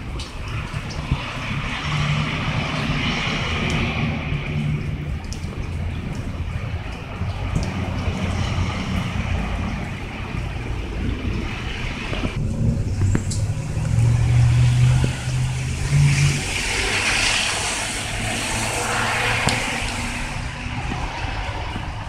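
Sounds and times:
tyres hissing on wet road: 0.0s - 22.0s
car engine humming: 9.3s - 22.0s.

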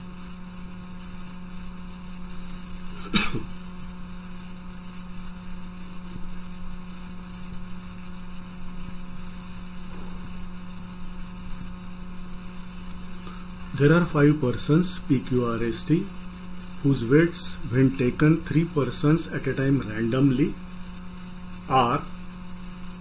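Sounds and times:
low electrical hum: 0.0s - 23.0s.

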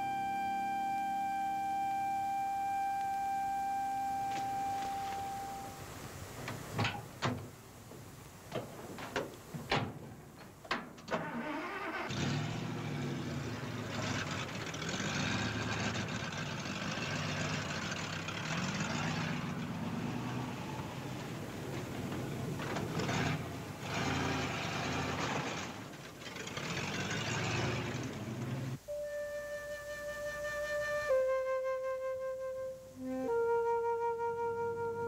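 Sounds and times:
music note: 0.0s - 5.9s, 28.9s - 35.0s
pickup truck engine revving: 11.2s - 28.8s.

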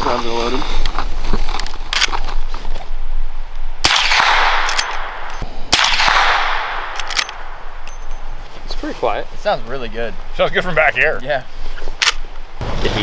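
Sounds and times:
suppressed rifle shots: 3.8s - 7.9s.

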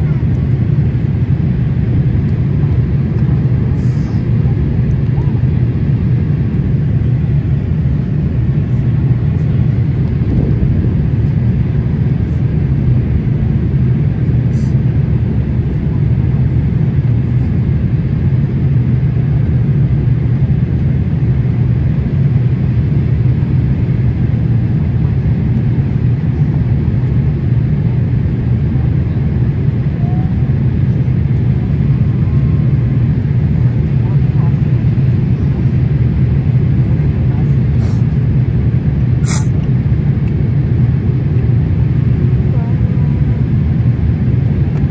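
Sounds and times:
jet engines humming: 0.0s - 44.9s
rushing airflow: 5.5s - 15.8s, 30.7s - 40.0s.

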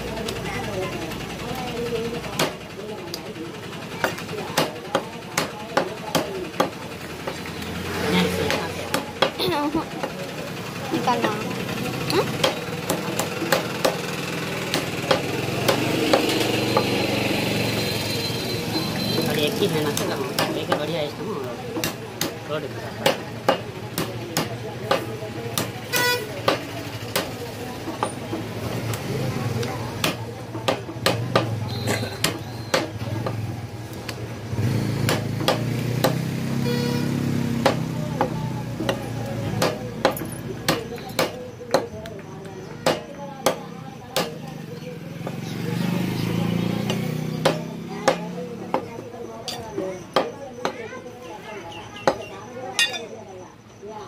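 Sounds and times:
steady engine hum: 0.0s - 54.0s
cleaver chopping meat and bone: 2.3s - 3.2s, 4.0s - 9.4s, 12.2s - 17.9s, 19.2s - 44.6s, 46.0s - 50.8s, 52.0s - 52.3s
cleaver chopping on wooden block: 12.4s - 14.1s, 14.7s - 16.9s, 21.8s - 22.4s, 26.4s - 27.3s, 30.0s - 31.5s, 35.0s - 36.2s, 37.6s - 39.0s, 39.6s - 41.9s, 42.8s - 43.6s.

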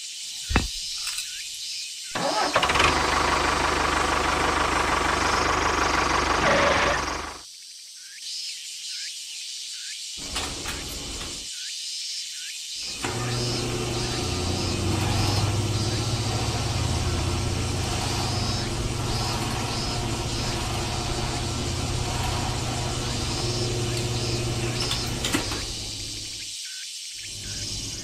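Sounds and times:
small motor humming: 2.3s - 7.4s, 12.8s - 26.5s, 27.3s - 28.0s.

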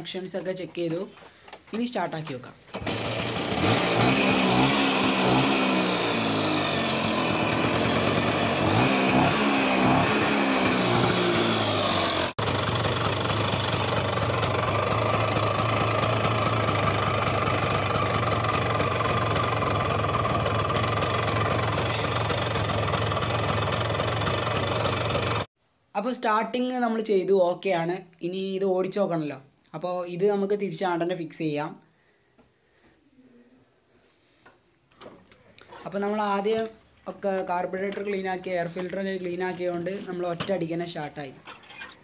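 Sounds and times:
scooter engine revving and idling: 2.8s - 25.5s.

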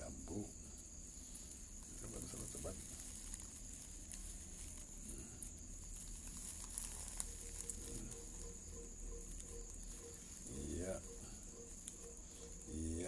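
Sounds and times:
clicks and rustles of grass: 0.0s - 13.0s
crickets chirring: 0.0s - 13.0s
low pulsed animal call: 6.6s - 13.0s.

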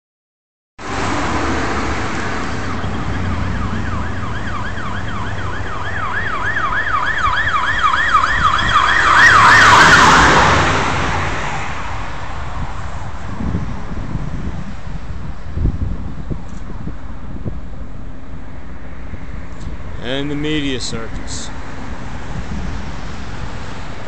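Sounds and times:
highway traffic rumble: 0.8s - 24.0s
road noise rush: 0.8s - 24.0s
emergency siren yelping: 2.4s - 11.0s.

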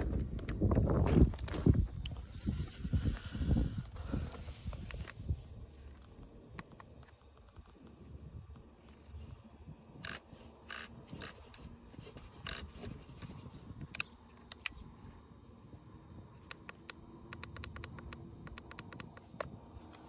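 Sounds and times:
plastic clicks and scrapes: 10.0s - 14.8s, 16.5s - 20.0s
quick run of small clicks: 16.4s - 20.0s.

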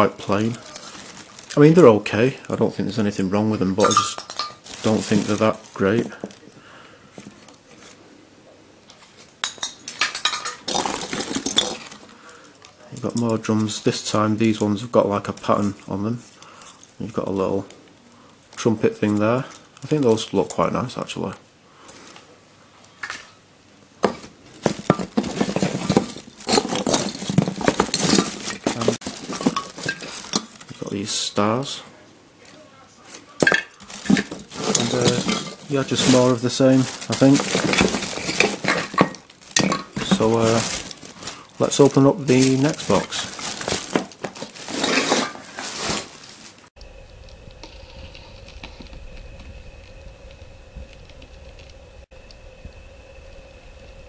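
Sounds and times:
plastic bag crinkling: 0.0s - 6.6s, 10.0s - 20.5s, 24.0s - 31.2s, 33.3s - 46.7s
faint steady hum: 45.3s - 54.0s.

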